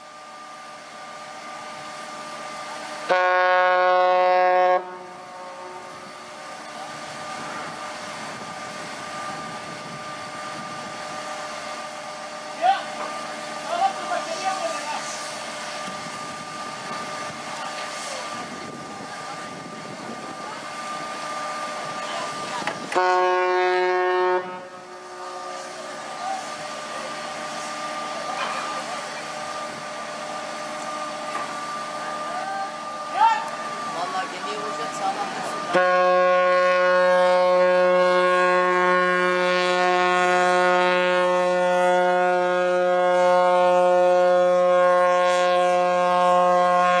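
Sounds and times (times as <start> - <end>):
ship engine running: 0.0 - 47.0.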